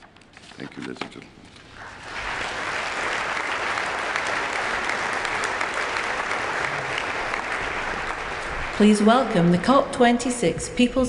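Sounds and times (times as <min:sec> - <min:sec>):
large audience applauding: 0:01.5 - 0:09.8.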